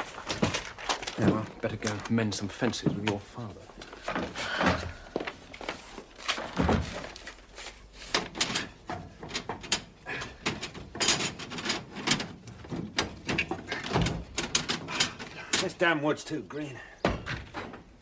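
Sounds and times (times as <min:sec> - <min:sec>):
metal clanks and knocks of stove: 0:08.1 - 0:15.7.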